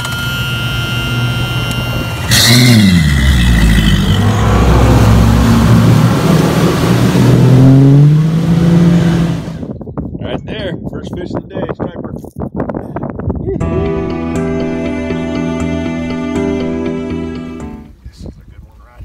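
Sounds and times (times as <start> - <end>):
high whine: 0.0 - 9.8
outboard engine revving: 1.0 - 9.7.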